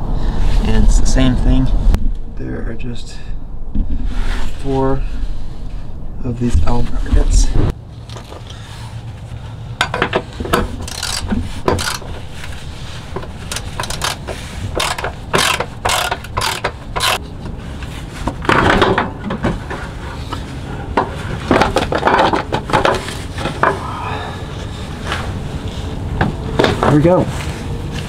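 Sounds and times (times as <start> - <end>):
socket ratchet clicking: 10.8 - 12.0, 13.5 - 17.2.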